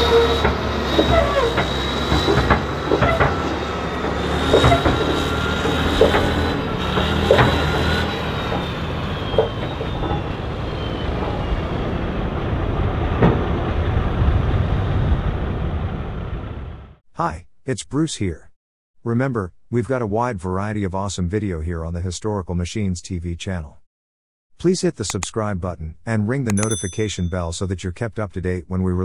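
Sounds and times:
squeaks and clanks of steel tracks: 0.0 - 12.0
diesel tractor running under load: 0.0 - 15.0.

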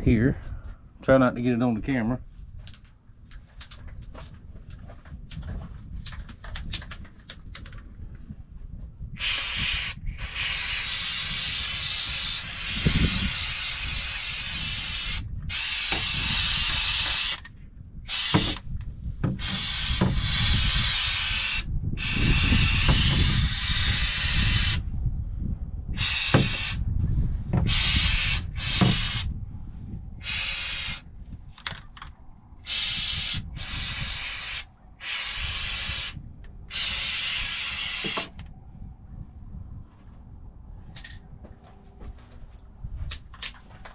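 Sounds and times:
aerosol can spraying: 9.2 - 17.4, 18.1 - 18.6, 19.4 - 24.8, 26.0 - 26.8, 27.6 - 29.3, 30.2 - 31.0, 32.7 - 38.3.

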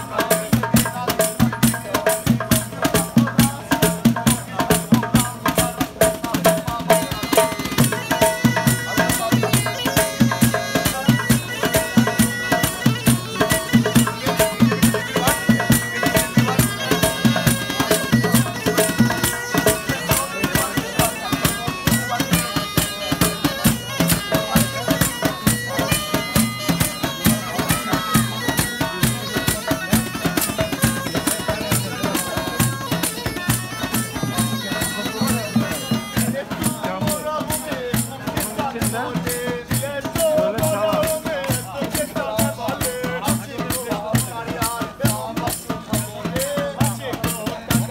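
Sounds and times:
box drum: 0.0 - 47.9
conga drums beat: 0.0 - 47.9
bagpipe melody: 6.7 - 37.8.

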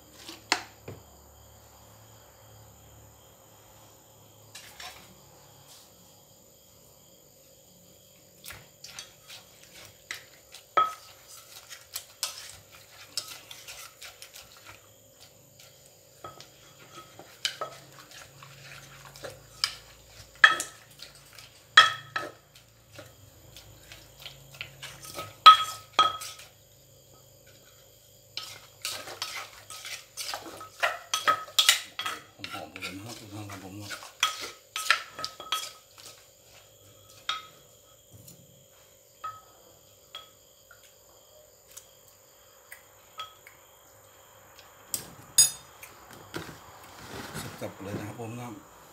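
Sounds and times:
spoon scraping: 8.8 - 26.6, 28.4 - 37.5.

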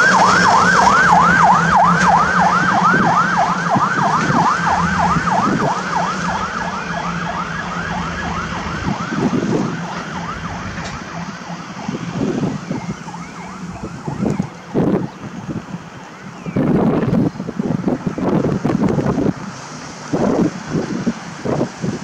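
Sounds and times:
fast yelp siren: 0.0 - 15.6
truck diesel engine: 0.0 - 22.0
wind gusts on microphone: 0.0 - 22.0.

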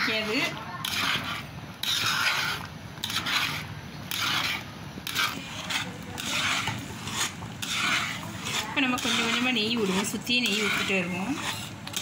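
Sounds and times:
spoon scraping a pan: 0.0 - 12.0.

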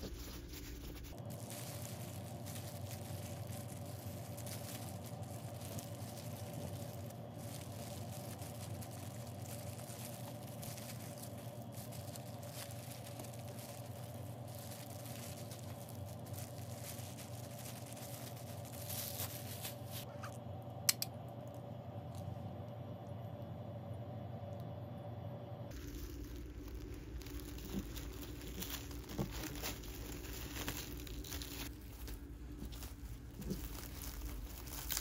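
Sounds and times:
gloved hands crinkling cling film: 0.0 - 20.3, 25.7 - 35.0
steady low hum: 0.0 - 35.0
sharp click: 20.9 - 21.1.

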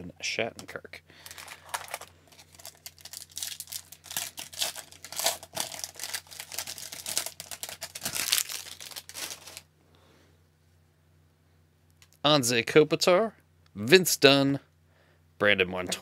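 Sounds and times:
foil wrapper crinkling and tearing: 1.2 - 9.7.

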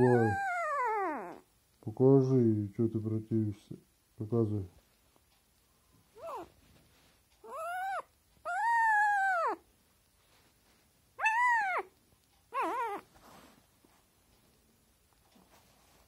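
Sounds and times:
puppy whining: 0.0 - 1.5, 6.1 - 6.7, 7.4 - 9.7, 11.2 - 13.4.

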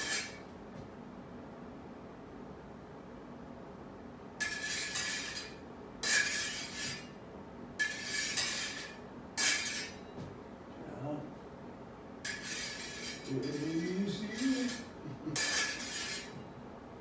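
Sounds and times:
sword blades scraping: 0.0 - 0.4, 4.4 - 7.2, 7.8 - 10.1, 12.2 - 16.4.

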